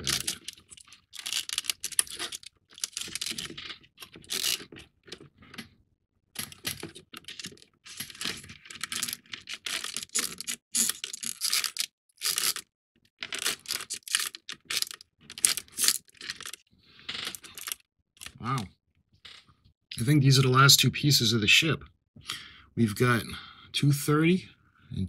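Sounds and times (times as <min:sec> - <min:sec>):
cardboard pieces rustling and clicking: 0:00.0 - 0:05.2, 0:06.4 - 0:16.6.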